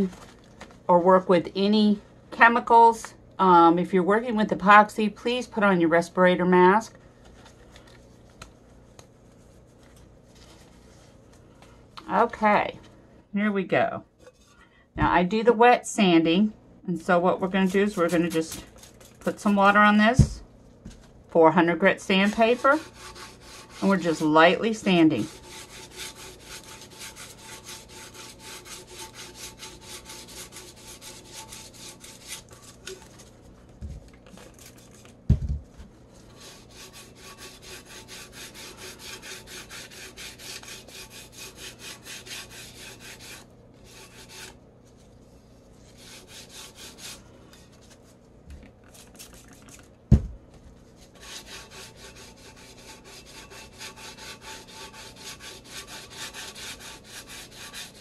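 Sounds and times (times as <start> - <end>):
wet sandpaper rubbing: 17.6 - 18.6, 22.2 - 32.8, 36.2 - 44.6, 45.8 - 47.2, 51.1 - 58.0.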